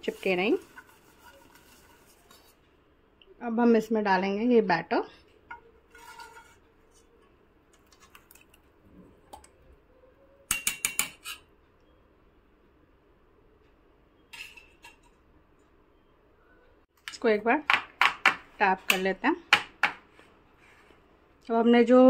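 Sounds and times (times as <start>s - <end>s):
utensil scraping a bowl: 0.0s - 2.6s, 5.5s - 7.2s.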